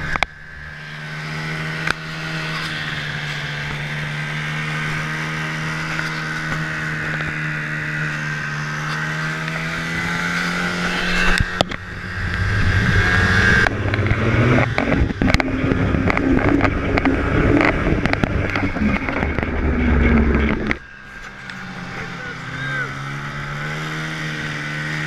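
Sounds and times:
snowmobile engine running: 0.0s - 25.0s
wind buffeting on camera: 10.7s - 20.9s.

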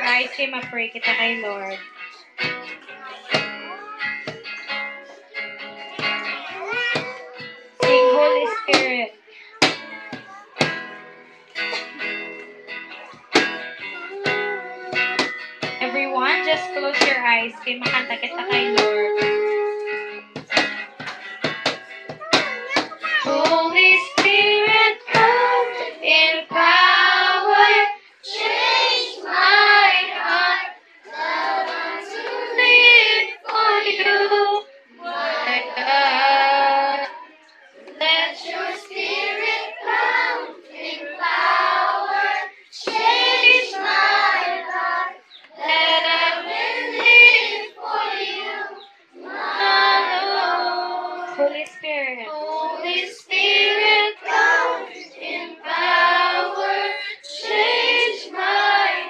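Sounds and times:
children singing unaccompanied: 1.0s - 59.0s.

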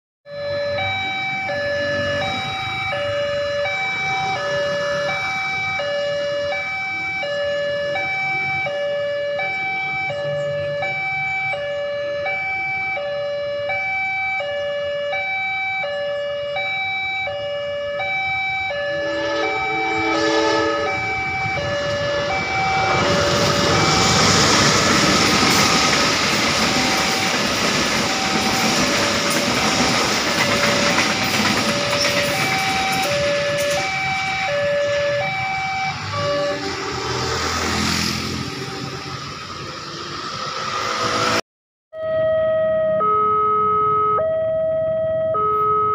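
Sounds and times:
crossing alarm two-note signal: 0.3s - 37.3s, 42.0s - 45.9s
train rumble: 18.3s - 41.4s
train horn: 18.8s - 24.4s.

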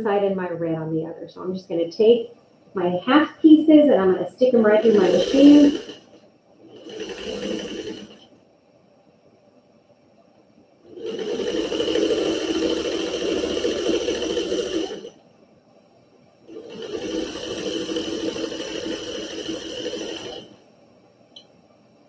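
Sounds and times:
electric sewing machine running: 4.6s - 8.3s, 10.8s - 15.2s, 16.4s - 20.6s.

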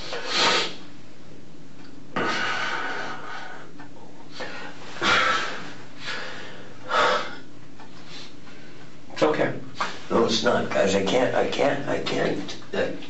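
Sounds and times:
man breathing heavily: 2.2s - 9.0s.

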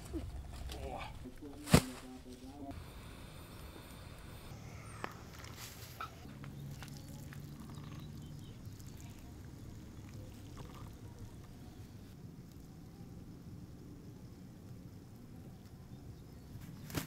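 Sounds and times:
faint low hum: 0.0s - 16.9s
water splashing and trickling: 6.3s - 11.4s.

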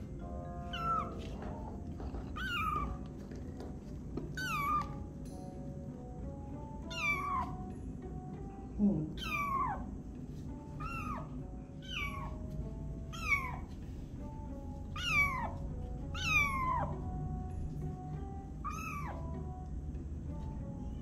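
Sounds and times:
soft background music: 0.0s - 21.0s
kitten meowing: 0.6s - 1.6s, 2.2s - 3.1s, 4.4s - 5.1s, 6.8s - 7.6s, 9.1s - 9.9s, 10.8s - 12.5s, 13.1s - 13.7s, 14.9s - 17.0s, 18.6s - 19.3s.

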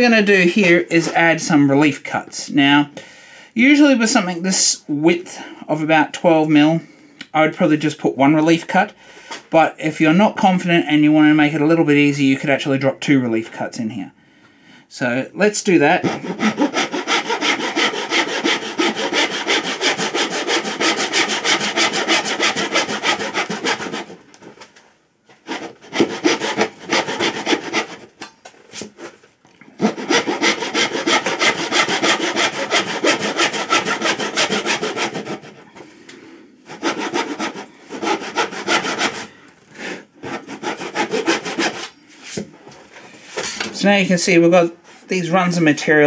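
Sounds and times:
hand saw cutting wood: 16.0s - 24.2s, 25.4s - 28.2s, 29.8s - 35.7s, 36.7s - 39.3s, 40.2s - 41.9s.

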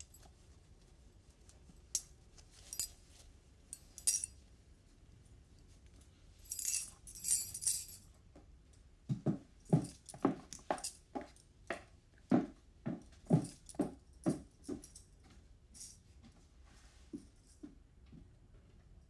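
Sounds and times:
metal bangles jingling: 2.0s - 4.4s, 6.4s - 8.1s.

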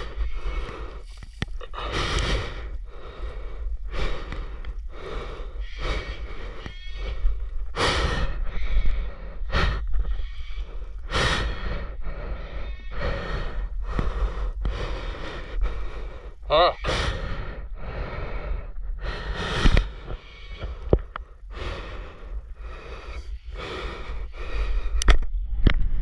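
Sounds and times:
low rumble: 0.0s - 16.5s
heavy breathing: 0.0s - 25.2s.

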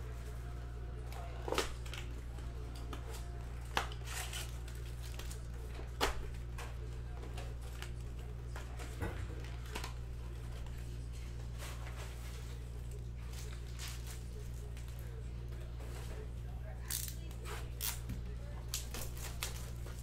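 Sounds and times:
foil packs crinkling: 3.1s - 5.7s.

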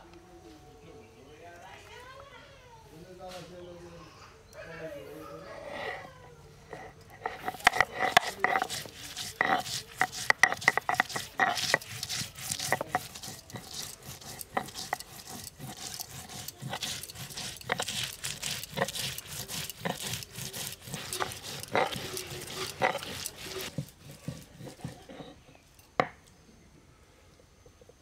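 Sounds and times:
stone roller scraping on grinding stone: 5.4s - 26.1s.

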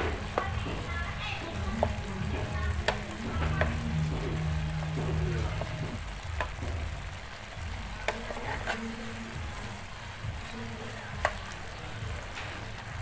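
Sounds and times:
syrup bubbling and sizzling: 0.0s - 13.0s
wooden spatula clicking on pan: 1.8s - 2.0s, 6.3s - 6.7s, 8.0s - 8.9s, 11.2s - 11.6s.

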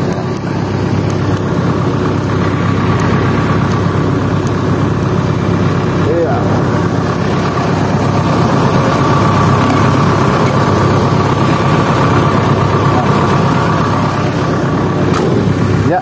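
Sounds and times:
diesel engine idling: 0.0s - 16.0s
thin steady whine: 0.0s - 16.0s.

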